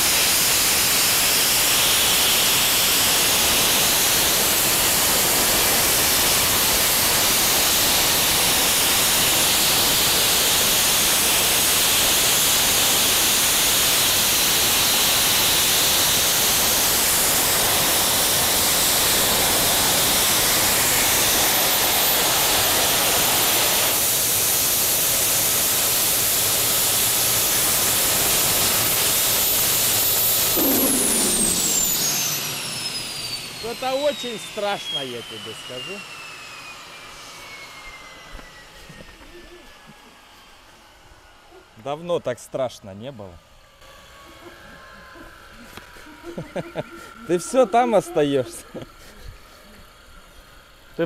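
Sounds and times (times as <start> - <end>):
jet engine exhaust rushing: 0.0 - 42.8, 43.6 - 51.0
falling whistle: 30.6 - 38.9.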